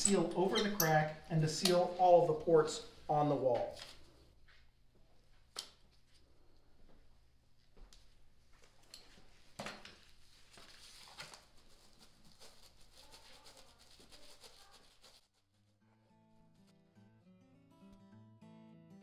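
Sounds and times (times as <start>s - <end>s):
acoustic guitar music: 15.8s - 19.0s.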